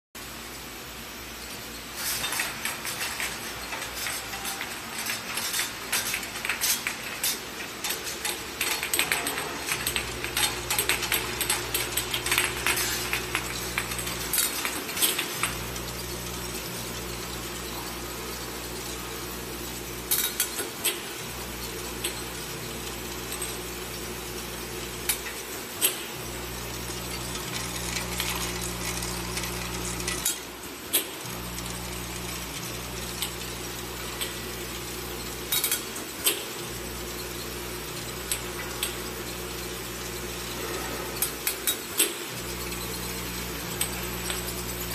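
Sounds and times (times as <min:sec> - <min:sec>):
capsules clicking along a tray: 0:02.2 - 0:15.9
vibratory feeder humming: 0:07.1 - 0:30.6, 0:31.2 - 0:41.6, 0:42.3 - 0:44.9.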